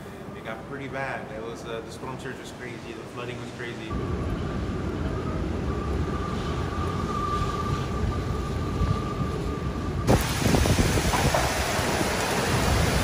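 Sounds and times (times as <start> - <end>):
wind gusts buffeting microphone: 3.9 - 13.0
wind rumbling on microphone: 3.9 - 13.0
faint steady whistle: 4.3 - 10.1
heavy rain hissing: 10.1 - 13.0.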